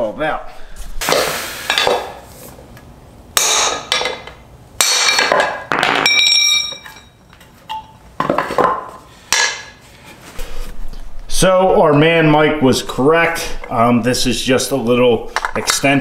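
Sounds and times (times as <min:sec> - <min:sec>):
hammer striking metal bar: 0:03.4 - 0:06.8.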